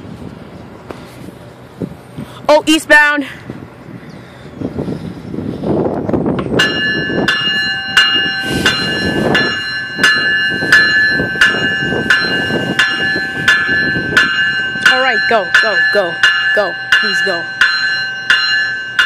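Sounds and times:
train rumbling past slowly: 0.0 - 19.0
train bell ringing: 6.6 - 19.0.

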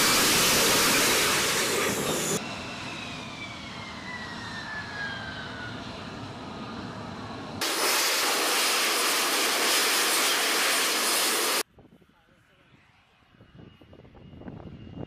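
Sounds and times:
loud rushing jet noise: 0.0 - 4.5, 6.1 - 11.6
jet engine whine: 0.0 - 11.7, 12.6 - 15.0.

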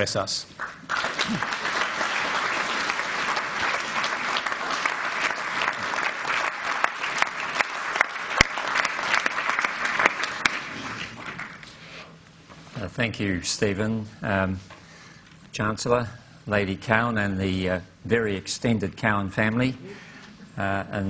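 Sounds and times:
audience applauding: 0.6 - 11.7.

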